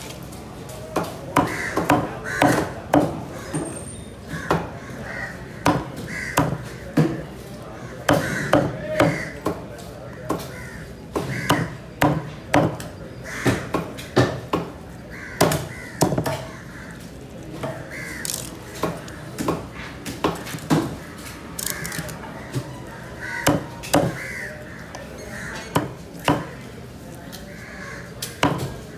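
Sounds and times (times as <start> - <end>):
crows cawing: 1.4 - 3.6, 4.3 - 6.9, 7.7 - 12.3, 13.2 - 13.9, 15.1 - 19.6, 21.0 - 26.7, 27.5 - 28.9.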